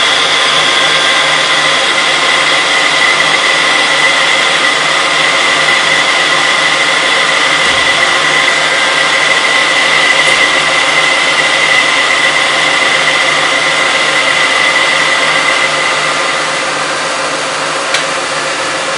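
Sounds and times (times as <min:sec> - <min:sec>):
metal lathe whining: 0:00.0 - 0:18.9.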